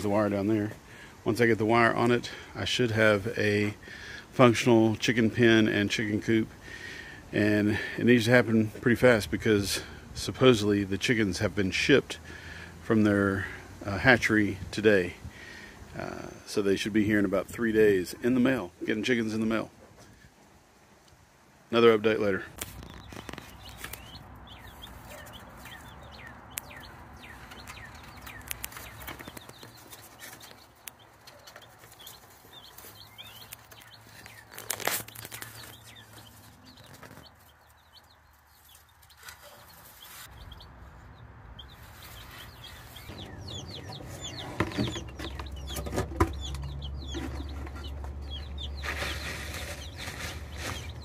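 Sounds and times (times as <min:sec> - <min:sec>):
chickens calling: 0:21.8 - 0:51.0.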